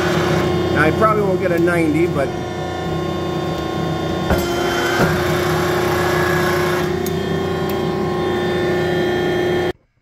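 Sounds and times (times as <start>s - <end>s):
press brake humming: 2.3s - 9.8s.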